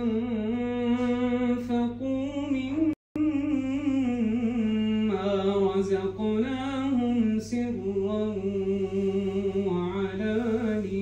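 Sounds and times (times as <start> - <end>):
man reciting melodically: 0.0 - 11.0.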